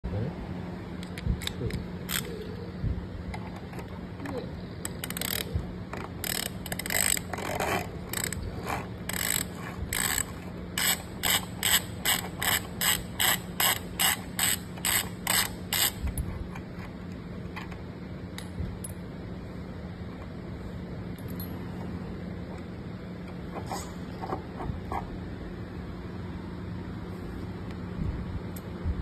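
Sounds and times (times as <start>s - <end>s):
ratchet wrench clicking: 1.0s - 2.3s, 4.8s - 16.1s.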